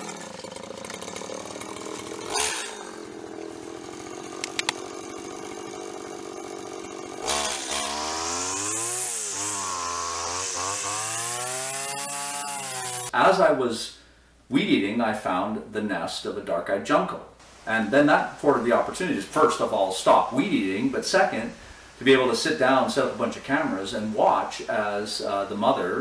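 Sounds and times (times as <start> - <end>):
string trimmer engine revving: 0.0 - 13.2.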